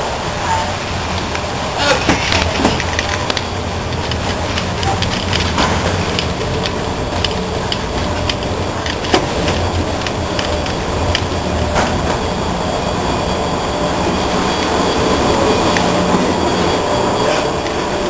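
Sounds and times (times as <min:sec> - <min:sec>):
people walking footsteps: 0:01.1 - 0:12.7.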